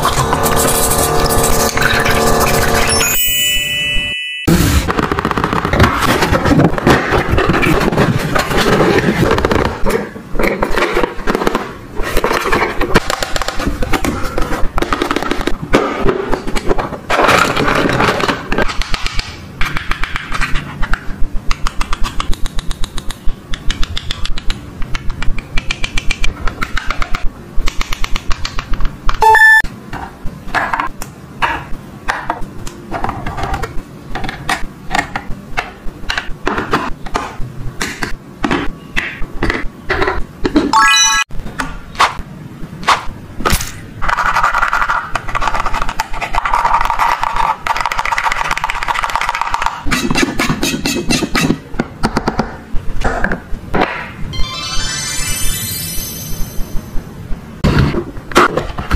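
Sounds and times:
short beep: 2.8 - 4.5, 29.2 - 29.7.

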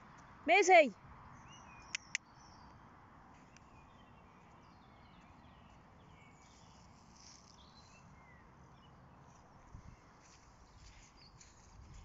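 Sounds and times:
birds chirping and whistling: 1.4 - 2.7.

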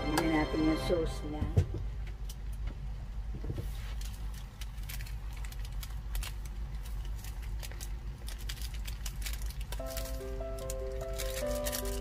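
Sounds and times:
noodles crackling in a hot pot: 3.7 - 12.0.

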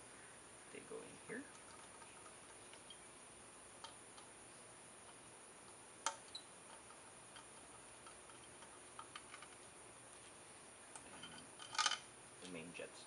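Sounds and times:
small metallic clicks: 3.8 - 4.3, 5.0 - 9.7, 10.9 - 12.6.

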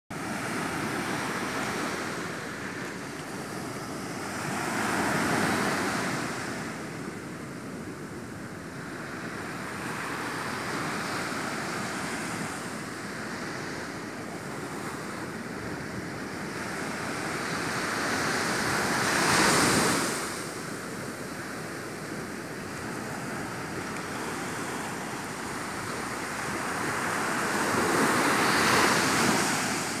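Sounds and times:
ocean waves breaking: 9.2 - 30.0.

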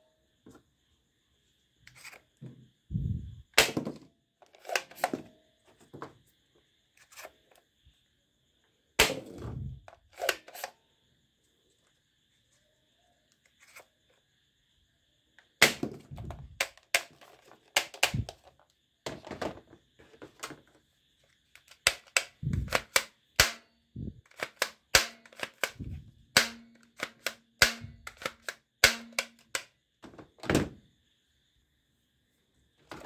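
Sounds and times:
plastic toy guns clicking: 3.6 - 5.2, 10.1 - 10.7, 15.6 - 18.6, 21.5 - 23.6, 24.2 - 29.7.

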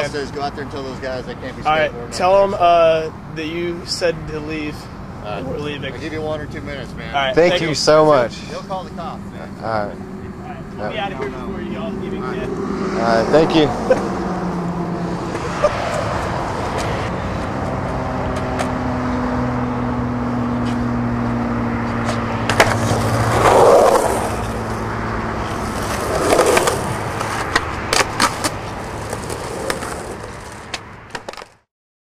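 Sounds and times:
low hum: 6.4 - 18.0
skateboard wheels rolling on concrete: 14.0 - 19.3, 20.2 - 31.7
skateboard clacking on concrete: 22.5 - 23.7, 25.6 - 31.6.

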